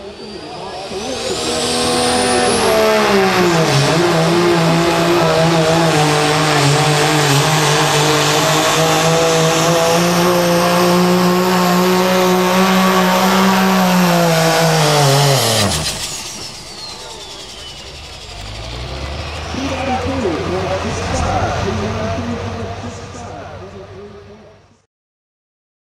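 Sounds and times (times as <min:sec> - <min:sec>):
diesel engine at full throttle: 0:00.0 - 0:24.8
turbo whistle: 0:15.0 - 0:20.4.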